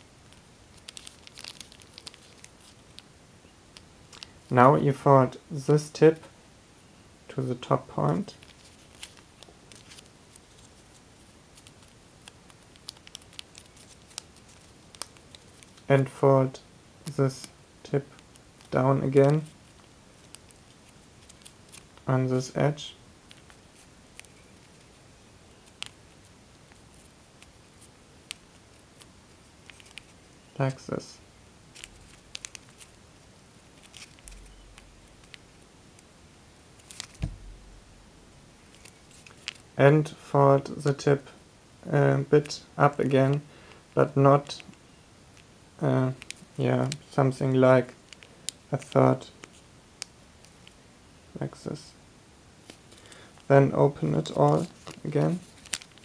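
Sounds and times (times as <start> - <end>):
thin foil paper crinkling: 0.7 - 3.0, 8.4 - 15.9, 19.4 - 22.0, 31.7 - 35.4, 36.8 - 37.8, 38.6 - 39.7, 54.2 - 56.0
soft low bump: 37.2 - 38.3.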